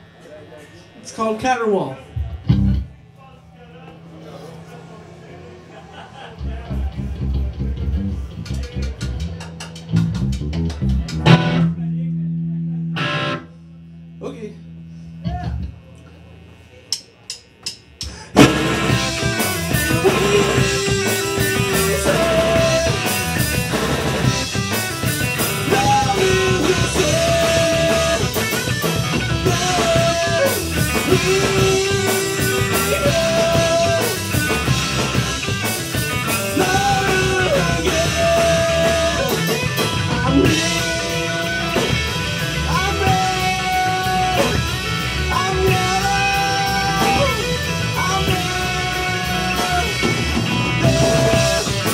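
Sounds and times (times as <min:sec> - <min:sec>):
bass guitar: 0:00.0 - 0:03.2, 0:03.9 - 0:51.9
distorted electric guitar: 0:00.0 - 0:51.9
drum kit: 0:02.1 - 0:03.0, 0:04.6 - 0:12.0, 0:16.9 - 0:51.9
man singing long notes: 0:19.8 - 0:23.2, 0:25.6 - 0:28.4, 0:29.4 - 0:34.4, 0:36.4 - 0:39.5, 0:42.6 - 0:50.1, 0:50.8 - 0:51.9.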